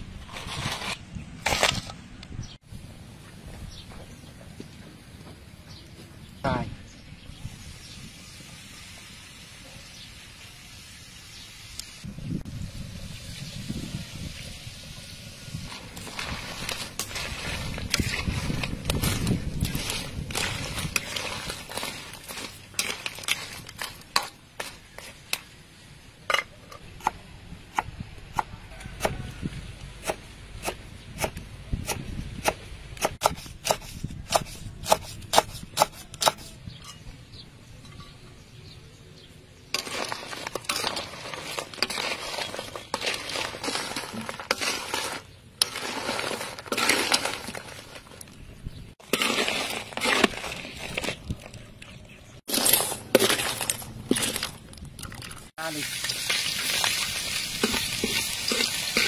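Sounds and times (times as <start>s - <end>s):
metal ladle stirring in wok: 15.8s - 25.3s, 39.8s - 48.2s, 56.7s - 59.0s.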